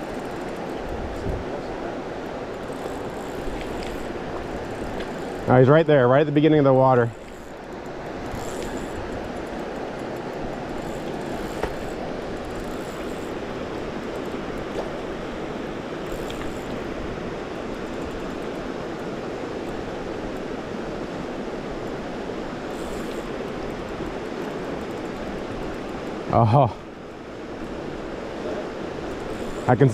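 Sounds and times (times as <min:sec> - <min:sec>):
faint clicks: 0:02.2 - 0:05.5, 0:16.0 - 0:16.8.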